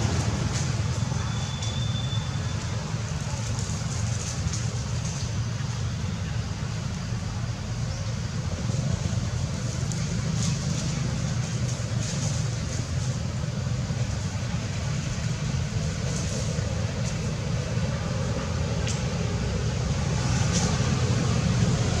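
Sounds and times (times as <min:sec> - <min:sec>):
faint crackles: 0:02.6 - 0:05.8.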